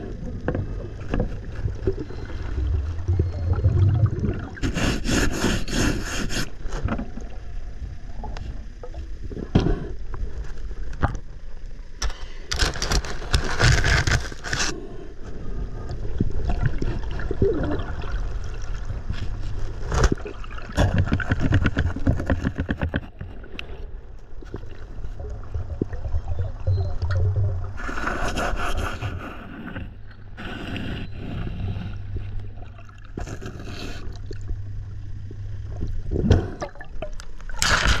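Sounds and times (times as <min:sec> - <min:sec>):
underwater bubbles gurgling: 0:00.0 - 0:05.0, 0:15.6 - 0:22.8, 0:23.4 - 0:28.0, 0:31.4 - 0:37.6
steady low hum: 0:00.0 - 0:38.0.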